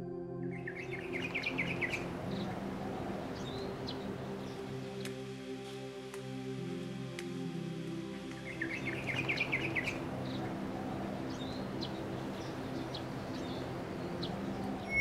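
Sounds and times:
steady background haze: 0:00.0 - 0:15.0
birds chirping: 0:00.6 - 0:05.1, 0:08.3 - 0:15.0.

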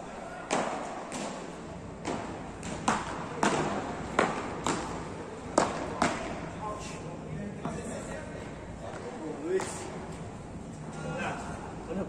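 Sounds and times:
paddles hitting ball: 0:00.4 - 0:06.4.

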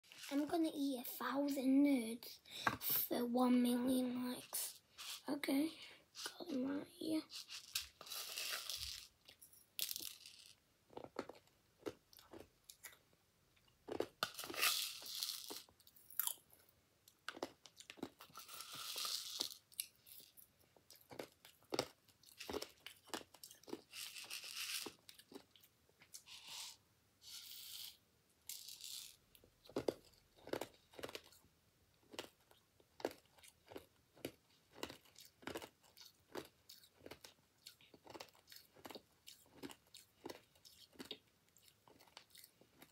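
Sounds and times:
candies rattling in plastic bowl: 0:07.2 - 0:09.2, 0:09.8 - 0:11.3, 0:14.2 - 0:15.7, 0:18.0 - 0:20.4, 0:22.4 - 0:25.0, 0:27.3 - 0:29.2
child crunching candy: 0:07.2 - 0:27.9, 0:28.5 - 0:31.4, 0:32.0 - 0:42.9.

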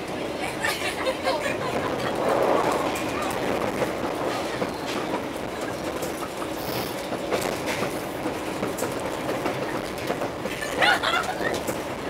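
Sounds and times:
train wheels rumbling on rails: 0:00.0 - 0:12.0
wheels clacking over rail joints: 0:03.0 - 0:12.0.

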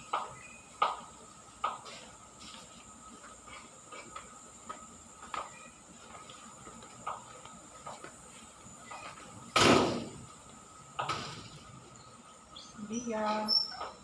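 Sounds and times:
loud sudden bang: 0:09.6 - 0:10.2.

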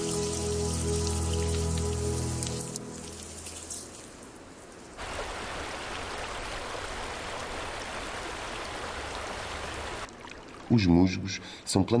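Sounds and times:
ice dripping: 0:00.0 - 0:05.0
water trickling over rocks: 0:00.0 - 0:10.9.

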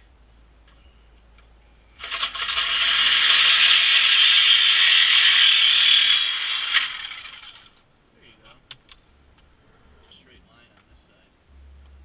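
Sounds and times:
reciprocating saw cutting metal pipe: 0:02.0 - 0:07.7.

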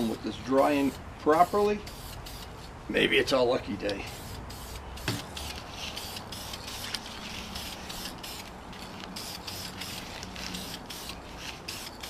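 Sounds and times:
aerosol can hissing: 0:04.1 - 0:12.0.

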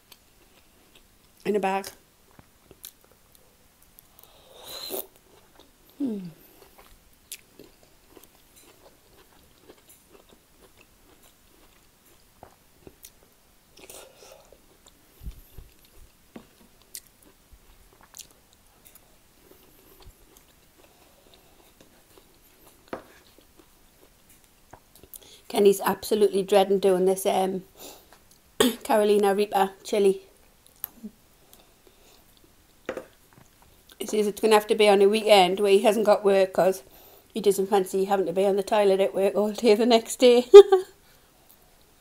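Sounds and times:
chewing and biting food: 0:06.6 - 0:13.2, 0:13.8 - 0:25.2.

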